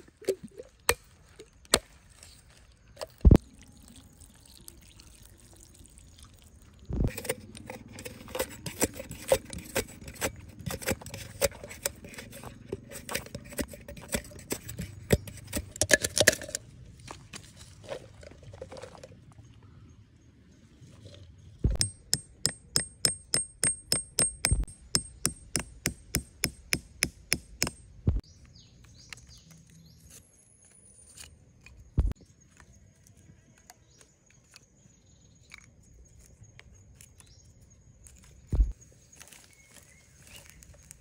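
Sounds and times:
hand tool striking metal: 0:21.7 - 0:27.9.

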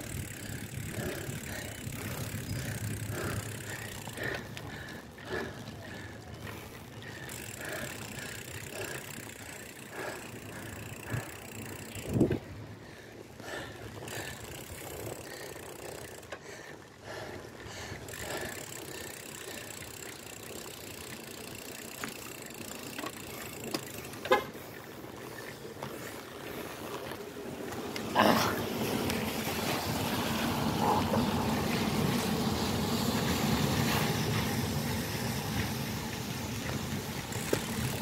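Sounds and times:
bicycle tyres hissing on wet road: 0:00.0 - 0:38.0.

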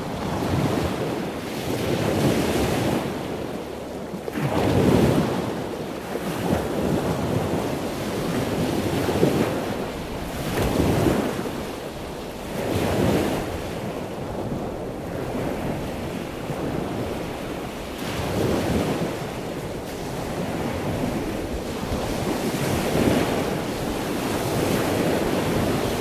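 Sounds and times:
surf washing onto beach: 0:00.0 - 0:26.0
wind on microphone: 0:00.0 - 0:26.0.

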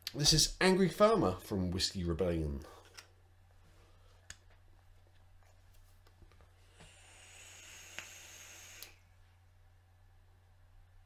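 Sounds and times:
vape device airy hiss: 0:06.7 - 0:09.0.

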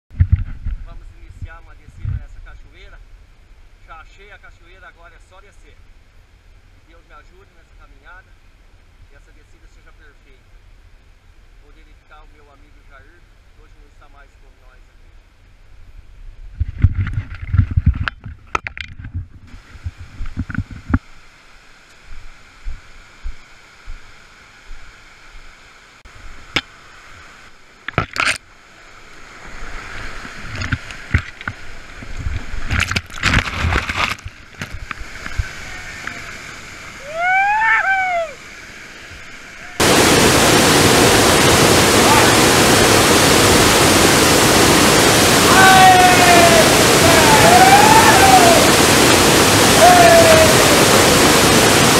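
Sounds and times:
faint rush of rapids: 0:00.8 - 0:16.4, 0:19.5 - 0:32.7, 0:33.5 - 0:51.9
handheld camera knocks and thumps: 0:16.6 - 0:21.0
waterfall roaring: 0:34.6 - 0:51.9.

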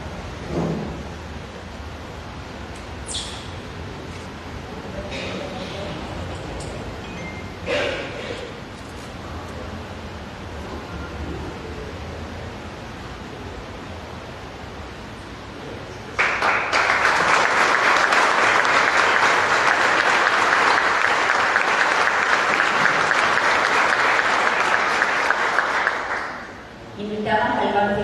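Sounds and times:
low room noise: 0:00.0 - 0:28.0
audience applauding: 0:16.2 - 0:26.6.

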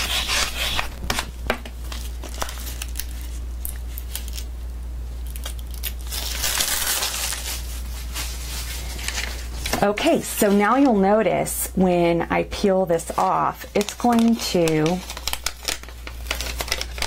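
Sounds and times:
steady low hum: 0:00.0 - 0:17.0
plastic film crackling and rustling: 0:01.8 - 0:04.5, 0:05.2 - 0:11.0, 0:13.0 - 0:17.0.

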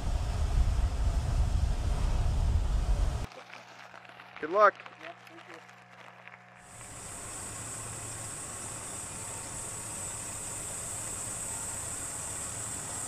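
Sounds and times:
high hiss: 0:06.6 - 0:13.0.

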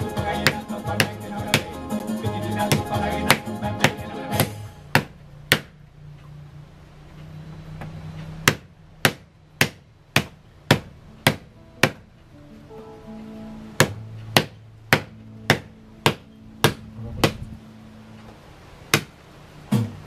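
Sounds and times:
faint music: 0:00.0 - 0:20.0
wooden beater striking bark: 0:00.2 - 0:01.8, 0:02.6 - 0:05.8, 0:07.8 - 0:12.1, 0:13.8 - 0:17.6, 0:18.9 - 0:19.2.

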